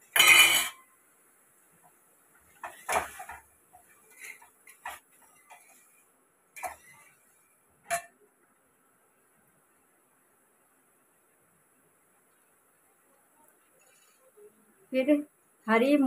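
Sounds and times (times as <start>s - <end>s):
metal ladle scraping in a pot: 4.0s - 6.0s, 6.6s - 7.3s.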